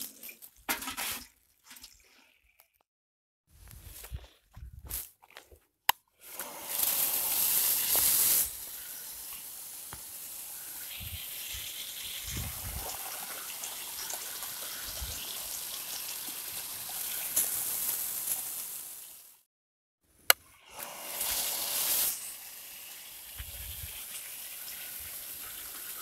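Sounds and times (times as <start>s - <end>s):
water gushing from pump outlet: 6.2s - 18.6s, 20.6s - 26.0s.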